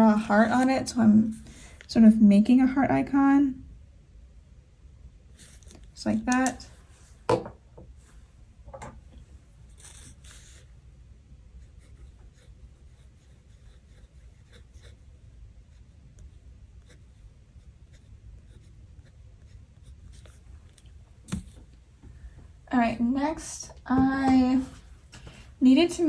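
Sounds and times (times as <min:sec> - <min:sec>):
pen scratching on paper: 0:09.8 - 0:10.7, 0:11.6 - 0:20.4.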